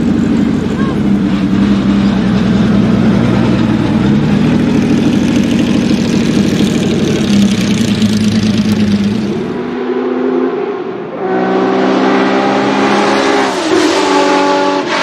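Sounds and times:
car engine running: 0.0 - 9.8.

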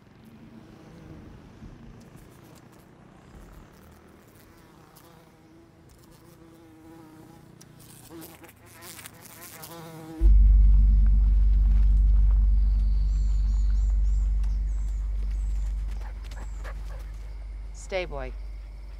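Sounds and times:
insect buzzing: 2.2 - 18.9
loud steady low hum: 10.2 - 18.9.

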